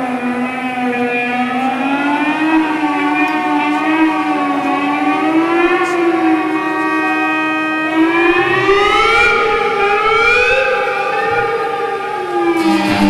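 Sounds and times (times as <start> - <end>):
siren-like wavering tone: 5.4 - 13.0.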